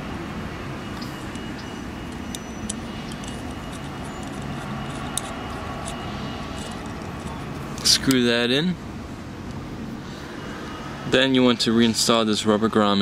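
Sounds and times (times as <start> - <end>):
outdoor background hum: 0.0 - 13.0
small metallic clicks: 1.0 - 8.2.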